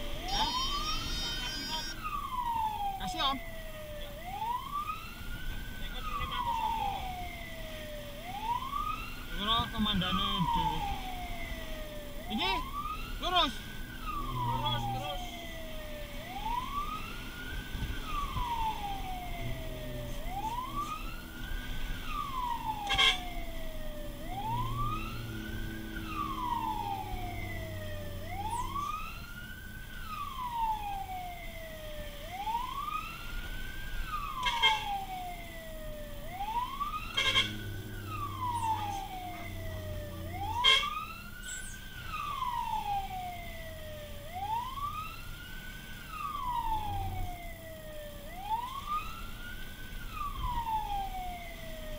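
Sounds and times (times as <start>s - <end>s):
fire truck siren wailing: 0.0s - 51.9s
short sharp siren blips: 0.1s - 2.3s, 36.2s - 42.9s
truck engine: 3.5s - 16.9s, 18.8s - 32.8s, 33.4s - 49.9s.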